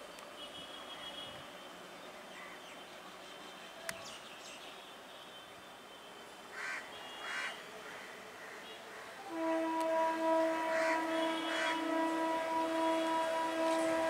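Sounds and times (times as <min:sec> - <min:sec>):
crows cawing: 0:06.5 - 0:09.1, 0:10.7 - 0:11.8.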